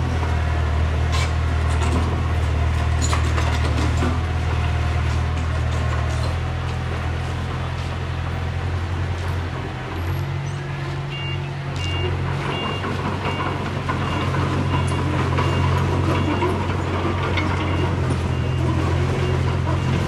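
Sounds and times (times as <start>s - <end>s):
heavy diesel engine running: 0.0s - 20.0s
reversing alarm beeping: 11.0s - 20.0s.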